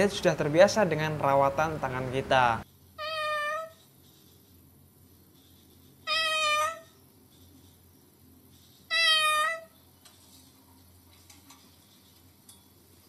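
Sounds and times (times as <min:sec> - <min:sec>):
cockatoo meow-like calls: 0:03.0 - 0:03.8, 0:06.0 - 0:07.0, 0:08.9 - 0:09.8.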